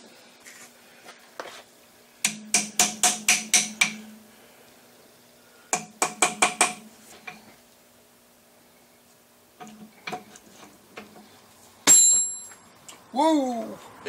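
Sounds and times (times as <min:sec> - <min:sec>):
hammer ringing on steel: 0:11.9 - 0:12.5.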